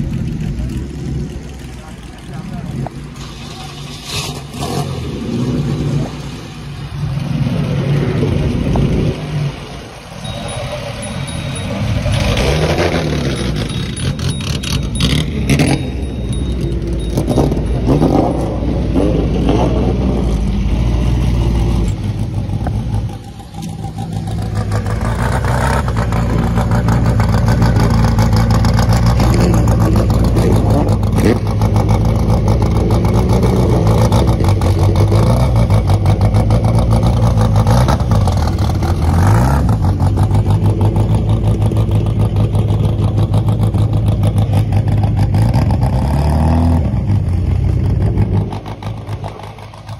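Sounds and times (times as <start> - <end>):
racing car engines running: 0.0 - 49.9
engine throttle blip: 10.2 - 19.6.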